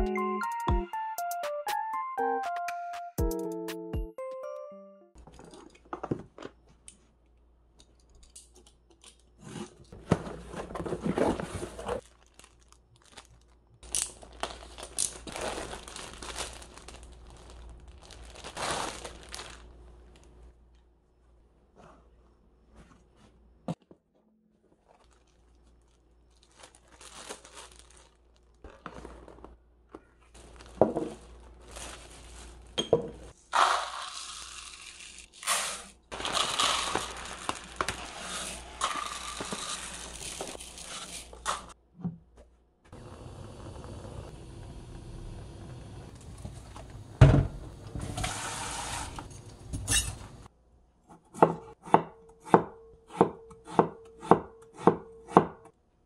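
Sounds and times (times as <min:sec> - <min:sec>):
plastic packaging rustling: 0:09.9 - 0:20.4, 0:24.7 - 0:32.8, 0:34.1 - 0:41.8
grains pouring into cup: 0:33.5 - 0:41.3.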